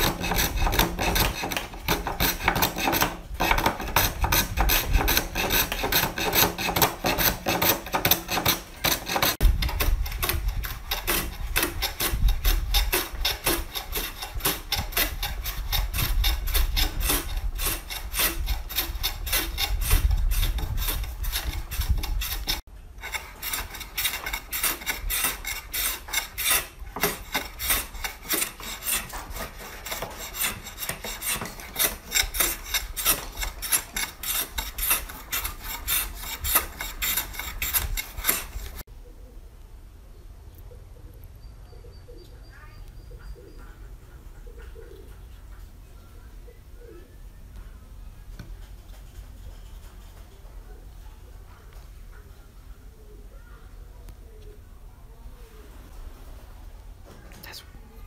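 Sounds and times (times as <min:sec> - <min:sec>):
hand plane rasping on wood: 0:00.0 - 0:38.8.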